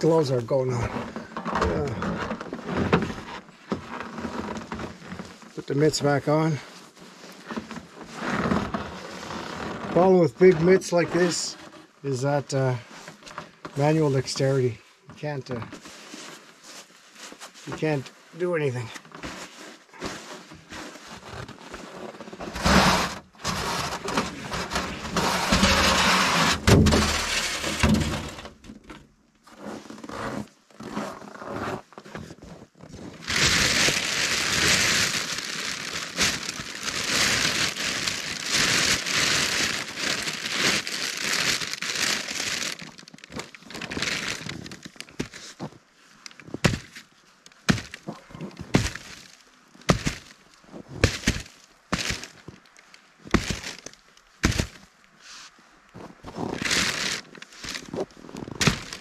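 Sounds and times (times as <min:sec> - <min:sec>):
crackles and knocks: 0:00.0 - 0:05.6, 0:07.3 - 0:12.0, 0:18.8 - 0:31.2, 0:31.8 - 0:54.9, 0:56.0 - 0:59.0
plastic bag crinkling: 0:17.7 - 0:28.5, 0:33.2 - 0:45.5, 0:47.7 - 0:54.9, 0:56.4 - 0:59.0.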